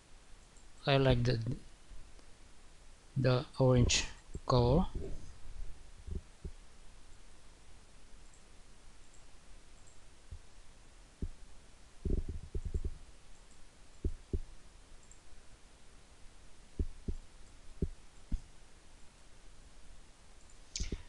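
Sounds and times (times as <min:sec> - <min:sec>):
low steady hum: 0:00.0 - 0:21.0
computer mouse clicks: 0:15.0 - 0:15.2.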